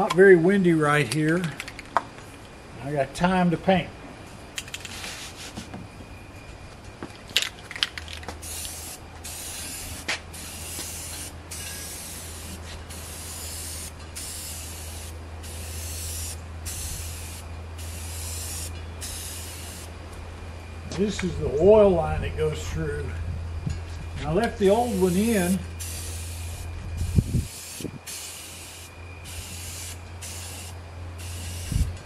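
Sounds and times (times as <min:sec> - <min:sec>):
steady low hum: 0:00.0 - 0:32.0
spray can hissing bursts: 0:08.4 - 0:19.9, 0:24.8 - 0:31.9.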